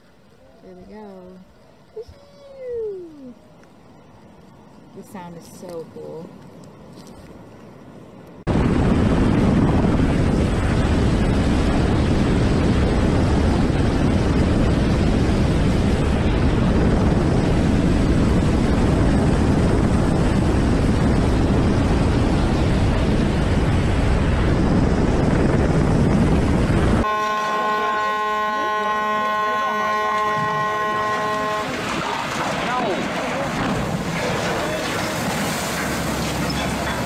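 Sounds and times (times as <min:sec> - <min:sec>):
wind rush: 0:08.4 - 0:27.2
helicopter rotor and engine noise: 0:08.5 - 0:27.1.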